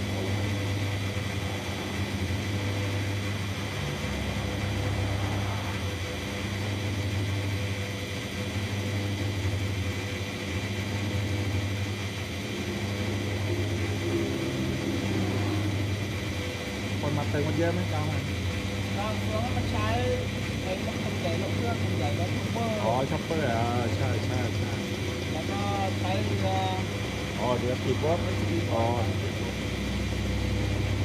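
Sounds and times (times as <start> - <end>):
fuel pump motor humming: 0.0 - 31.0.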